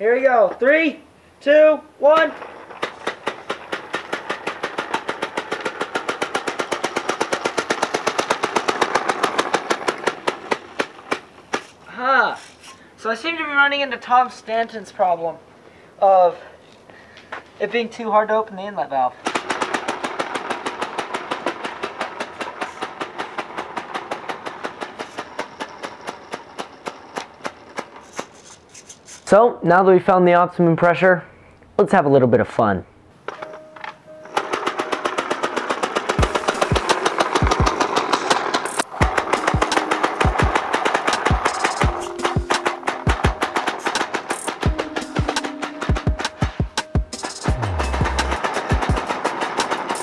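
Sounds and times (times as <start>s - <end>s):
air engine rapid pops: 2.2s - 12.7s, 19.2s - 25.7s, 34.4s - 50.0s.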